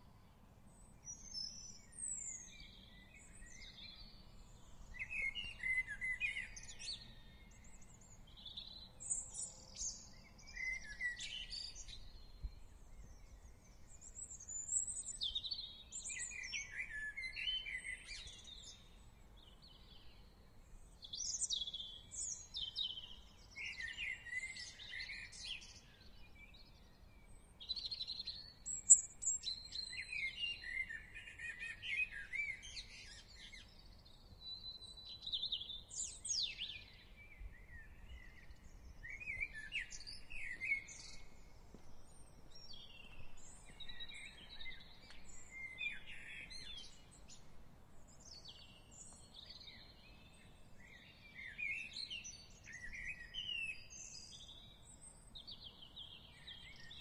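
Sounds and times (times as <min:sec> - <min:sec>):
faint low background noise: 0:00.0 - 0:57.0
songbirds singing and chirping: 0:00.0 - 0:57.0.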